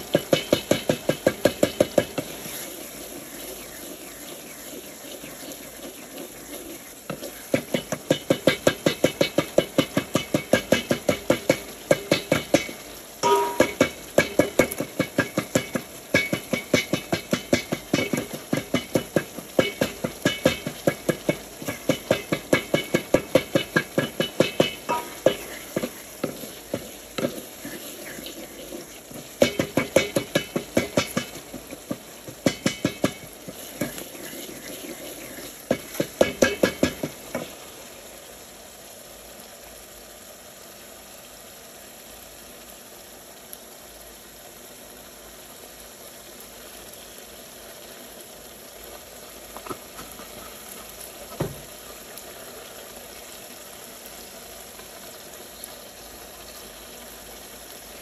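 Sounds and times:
metal utensil clattering on pot: 0.0s - 2.4s, 7.1s - 37.5s
food sizzling: 0.0s - 58.0s.

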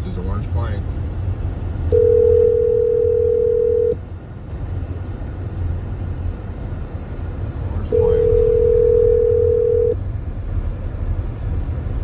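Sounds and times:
low rumble of car driving: 0.0s - 12.0s
telephone ringback tone: 1.9s - 4.0s, 7.9s - 10.0s.

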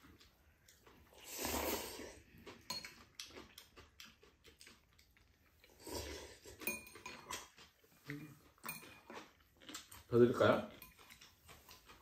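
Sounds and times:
noodles slurped: 0.7s - 12.0s
chopsticks clicking on bowls: 6.6s - 10.1s.

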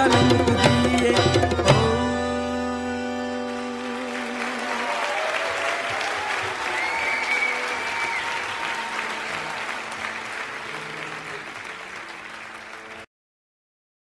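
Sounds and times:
audience applauding: 3.5s - 13.1s.

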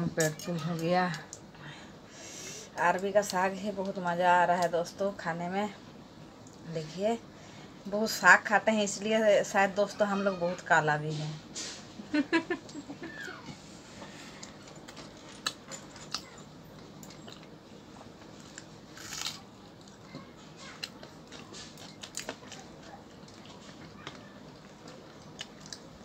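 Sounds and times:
faint chewing: 12.7s - 26.0s
fingers tearing bread: 18.4s - 20.0s.

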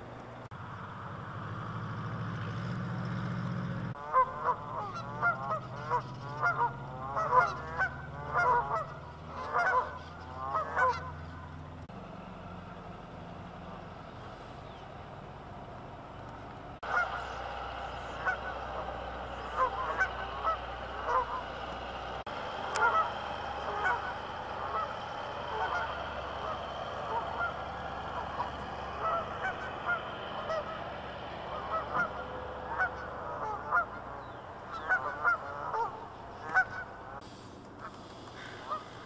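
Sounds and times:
geese honking: 4.0s - 11.6s, 16.8s - 37.2s, 37.8s - 39.0s.

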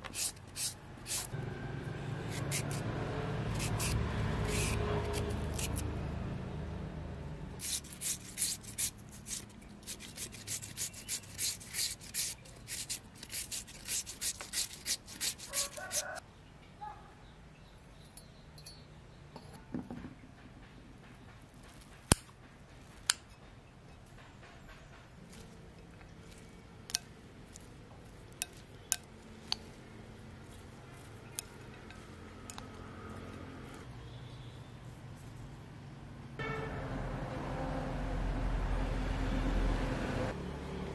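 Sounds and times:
grater rasping on tuber: 0.0s - 1.4s, 2.2s - 5.9s, 7.6s - 16.2s
chopsticks tossing noodles: 2.3s - 2.8s, 3.5s - 5.8s, 7.6s - 16.2s, 25.3s - 33.8s.

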